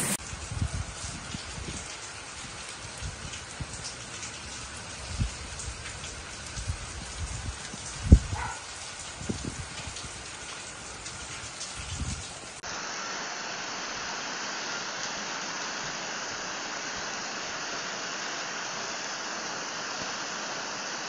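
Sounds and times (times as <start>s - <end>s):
wind bumps on microphone: 0.0s - 3.8s, 6.5s - 10.2s, 11.1s - 12.3s
rain falling on roofs and pavement: 0.0s - 21.0s.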